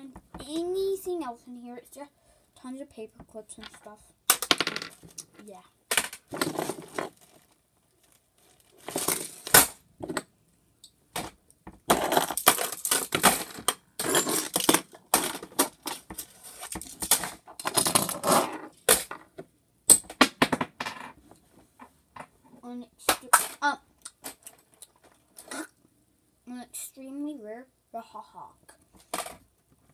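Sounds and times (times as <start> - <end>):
small metal pieces clinking: 12.0 - 15.3.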